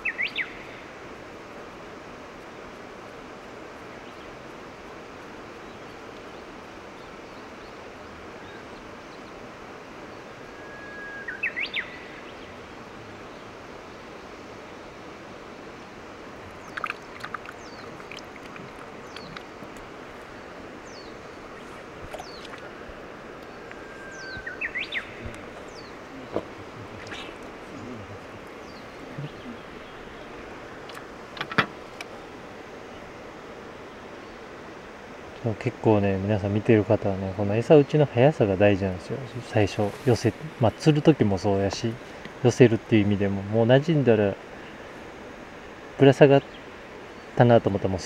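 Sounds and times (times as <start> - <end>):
songbird calls: 0.0 - 1.0, 5.6 - 9.4, 10.0 - 32.2, 46.2 - 47.5
outdoor hiss: 0.0 - 48.0.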